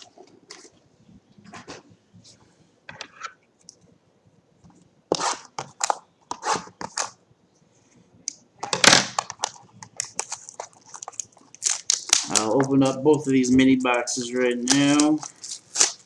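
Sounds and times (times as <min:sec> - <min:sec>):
cardboard packaging tearing: 0:08.9 - 0:13.0, 0:14.2 - 0:16.0.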